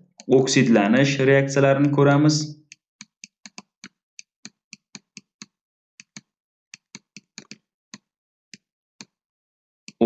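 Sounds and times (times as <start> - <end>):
stylus tapping on tablet: 2.7 - 9.2.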